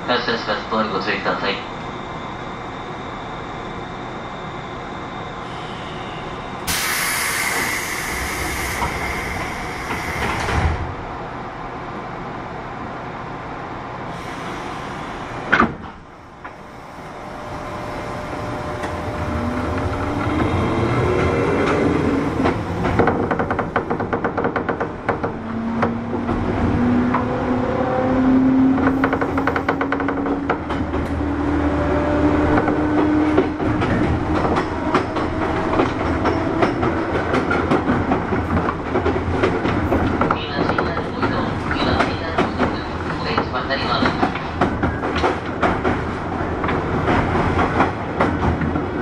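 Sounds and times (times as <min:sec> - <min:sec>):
train doors closing with air hiss: 0:05.4 - 0:11.0, 0:14.1 - 0:17.8
electric train motors whining: 0:16.5 - 0:22.5.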